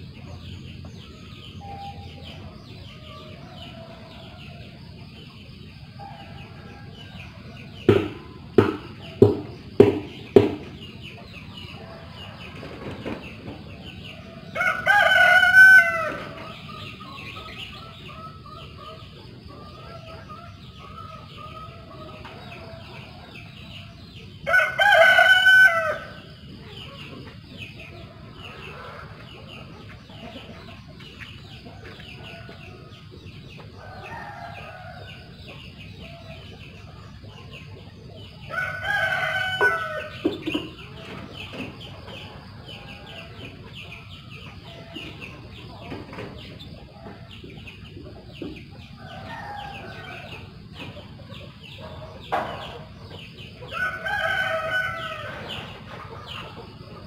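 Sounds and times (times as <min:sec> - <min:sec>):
faint bird chirps: 0:00.0 - 0:04.6
rooster crowing: 0:14.2 - 0:16.6, 0:24.4 - 0:26.3, 0:33.8 - 0:35.3, 0:38.5 - 0:40.2, 0:49.0 - 0:50.5, 0:53.7 - 0:55.6.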